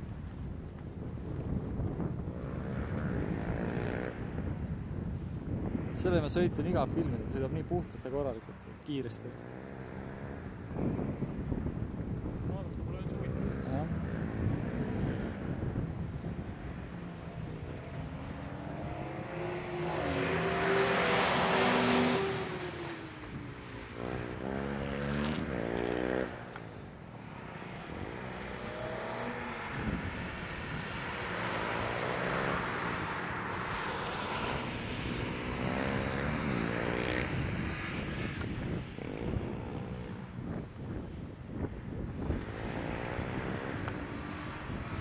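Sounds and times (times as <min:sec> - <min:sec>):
car engine revving: 0:16.5 - 0:23.4.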